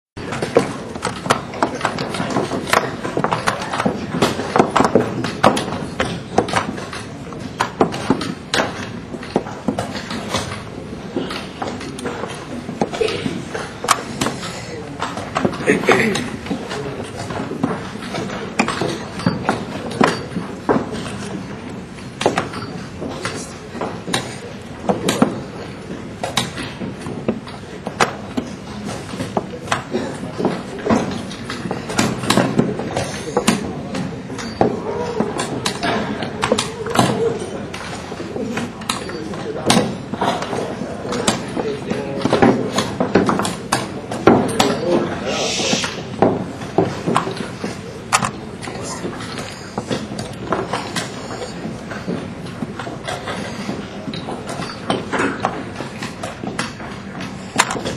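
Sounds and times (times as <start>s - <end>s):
steady background noise: 0.1s - 57.9s
chess pieces knocking on board: 0.3s - 34.8s, 39.6s - 45.2s, 45.9s - 57.9s
hall background hum: 44.6s - 54.5s.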